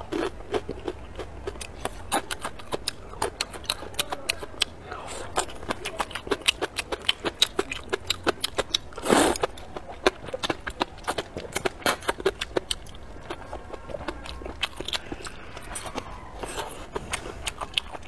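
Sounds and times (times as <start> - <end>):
wet chewing clicks: 0.0 - 18.0
loud noodle slurp: 9.0 - 9.4.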